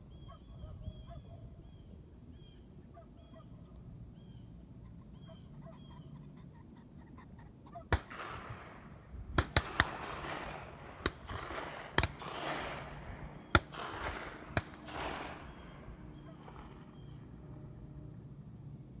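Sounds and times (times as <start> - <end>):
distant shotgun shots echoing: 7.9 - 17.4.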